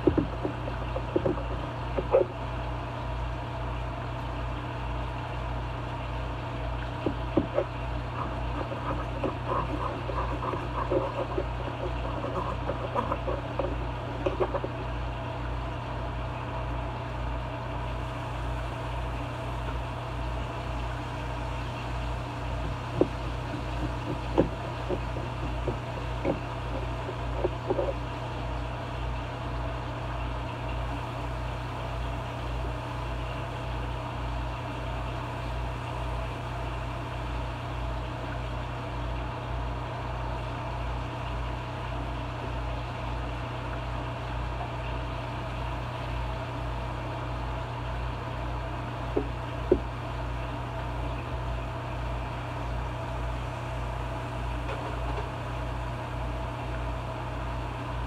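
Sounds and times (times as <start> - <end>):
low machine hum with throb: 0.0 - 58.0.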